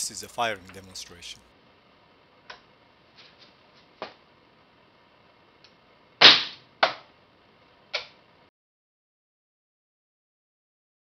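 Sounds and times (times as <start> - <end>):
coilgun firing sharp crack: 6.2 - 7.0.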